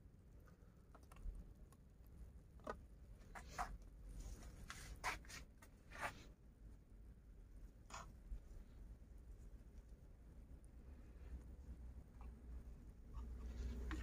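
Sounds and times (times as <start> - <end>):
faint scratchy rustles: 3.2 - 6.4.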